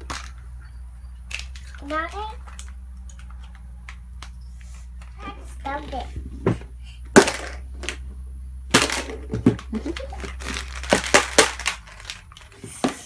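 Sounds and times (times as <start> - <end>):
plastic crinkling and clicking: 9.5 - 12.7.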